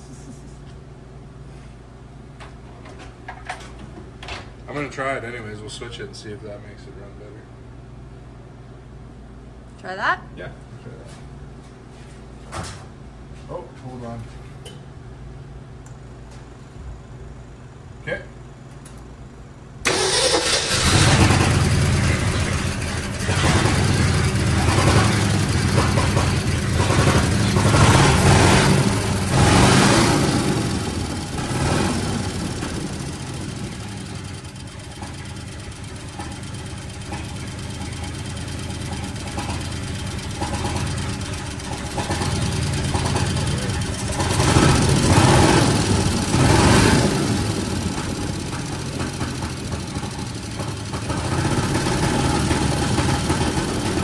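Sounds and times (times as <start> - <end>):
engine revving and settling: 19.9 - 54.0.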